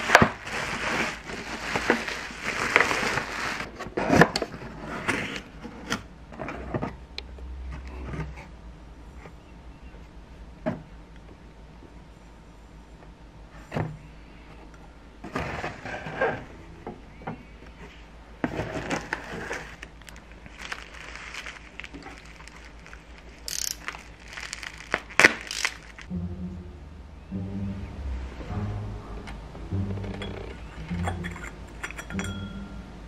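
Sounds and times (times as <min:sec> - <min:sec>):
plastic wrapping crinkling: 0:00.0 - 0:03.7, 0:18.8 - 0:26.1.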